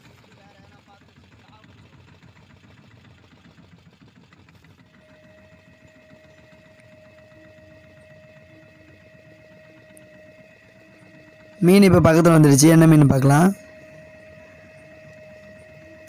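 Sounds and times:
boat engine idling: 0.0 - 16.0
steady high whine: 5.0 - 16.0.

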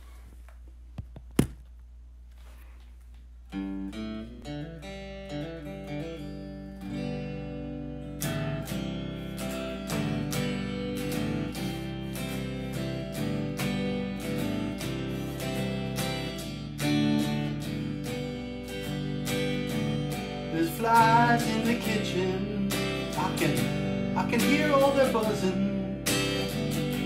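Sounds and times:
guitar picking and strumming: 3.5 - 27.0.

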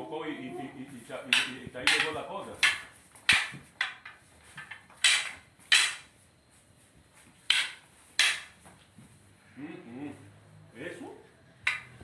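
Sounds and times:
wooden sticks clacking: 1.2 - 6.2, 7.4 - 8.9, 11.6 - 12.0.

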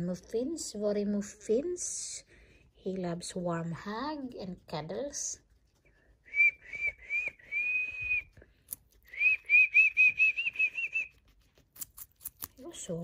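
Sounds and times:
guinea pig whistling: 9.0 - 11.9.

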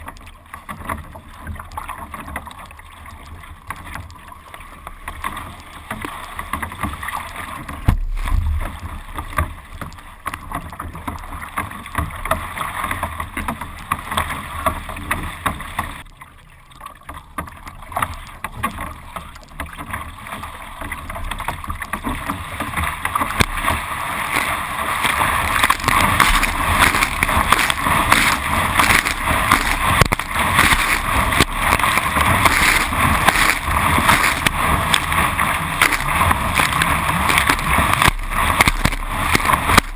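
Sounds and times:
water splashing against boat bow: 0.0 - 39.9
thump: 7.8 - 8.7.

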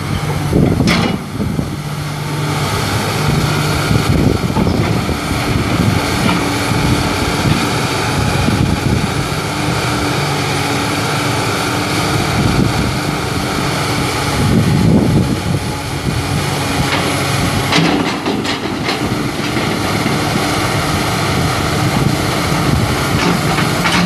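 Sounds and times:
hydraulics moving arm: 0.0 - 9.4
diesel excavator engine running: 0.0 - 24.0.

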